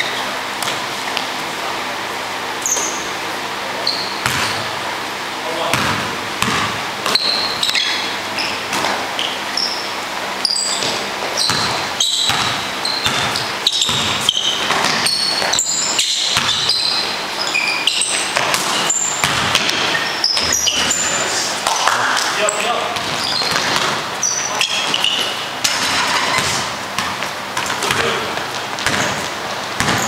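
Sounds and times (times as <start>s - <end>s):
basketball bouncing on gym floor: 0.0s - 1.4s, 3.8s - 4.9s, 5.6s - 30.0s
sneakers squeaking: 0.0s - 30.0s.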